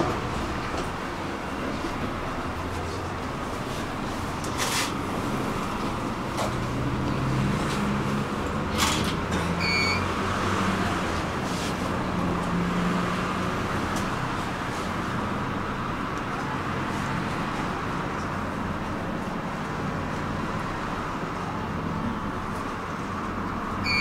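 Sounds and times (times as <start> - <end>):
electric tram rolling: 0.0 - 24.0
electronic double beep: 9.6 - 10.1.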